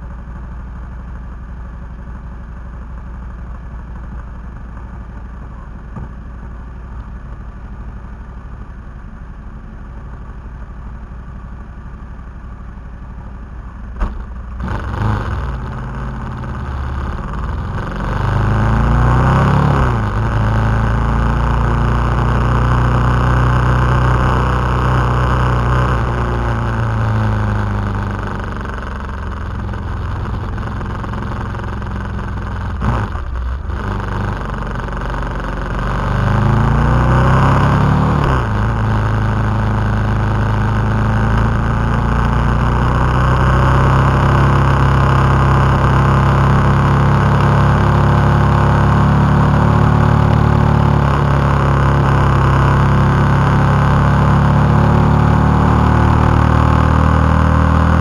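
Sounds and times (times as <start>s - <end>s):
motorcycle engine revving: 13.9s - 58.0s.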